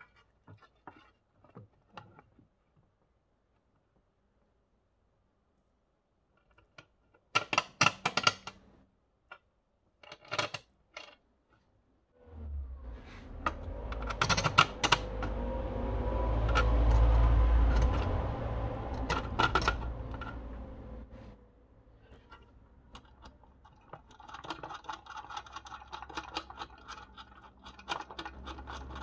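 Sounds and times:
low rumble with rustling: 0:12.2 - 0:23.6.

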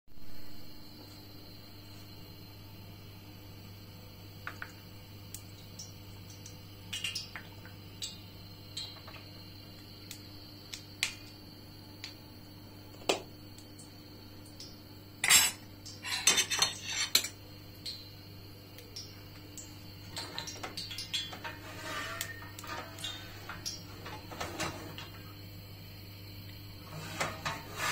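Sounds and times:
faint steady hum: 0:00.1 - 0:27.9
utensils and dishes knocking: 0:15.2 - 0:17.3
kitchenware clatter: 0:15.2 - 0:17.4, 0:20.2 - 0:25.1, 0:26.9 - 0:27.9.

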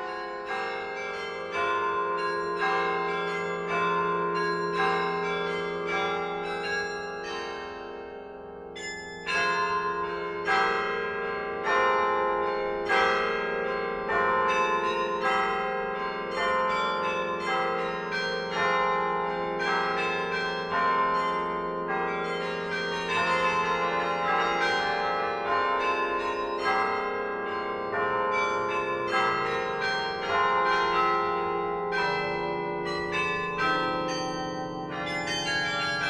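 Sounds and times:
church bells ringing: 0:00.0 - 0:36.0.

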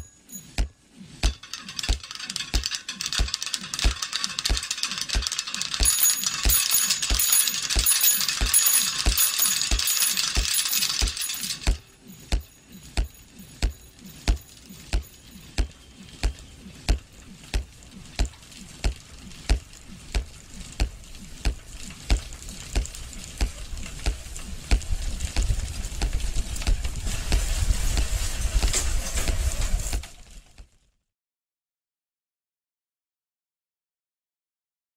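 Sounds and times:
dense high rattling: 0:01.2 - 0:11.9.

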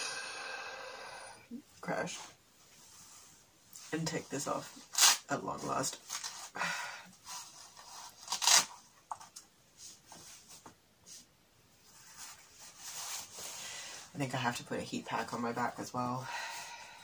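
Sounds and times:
straps rustling: 0:02.7 - 0:14.1
hook-and-loop fastener tearing: 0:04.9 - 0:05.3, 0:08.0 - 0:08.8.

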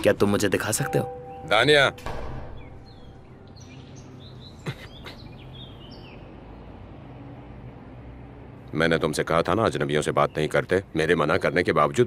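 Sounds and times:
birds chirping faintly: 0:00.0 - 0:07.9, 0:08.6 - 0:12.0
sharp thump: 0:02.0 - 0:03.2.

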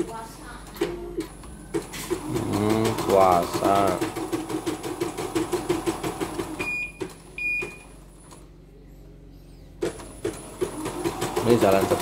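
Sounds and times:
embroidery machine stitching: 0:01.7 - 0:07.2, 0:09.8 - 0:12.0.

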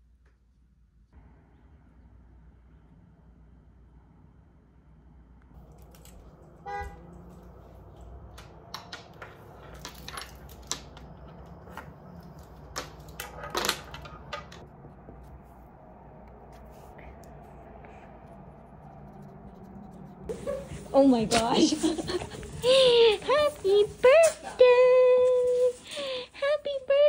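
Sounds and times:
car horn toot: 0:06.6 - 0:07.2.

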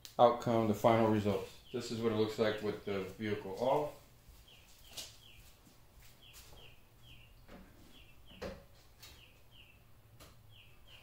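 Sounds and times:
faint bird chirps: 0:10.5 - 0:11.0.

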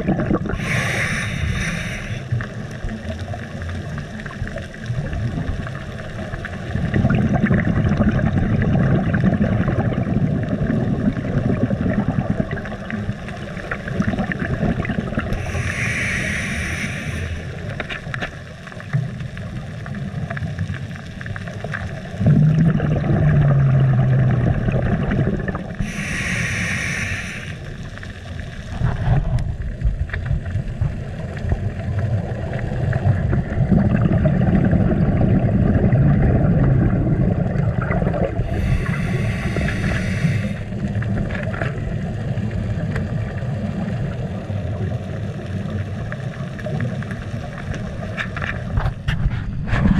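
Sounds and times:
low underwater rumble: 0:00.0 - 0:49.9
scuba regulator breaths hissing: 0:00.5 - 0:02.4, 0:15.3 - 0:17.7, 0:25.8 - 0:27.8, 0:38.4 - 0:40.8.

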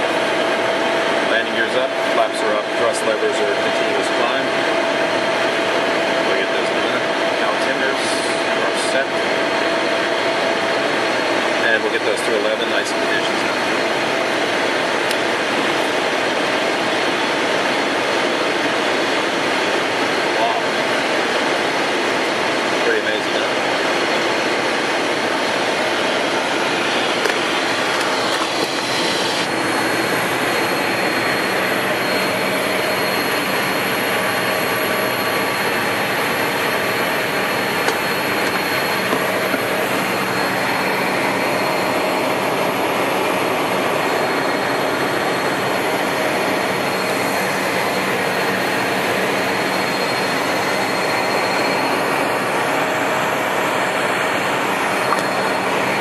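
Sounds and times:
airflow rushing over aircraft: 0:00.0 - 0:49.8
jet engines humming: 0:00.0 - 0:56.0
thin high whine: 0:00.0 - 0:56.0.

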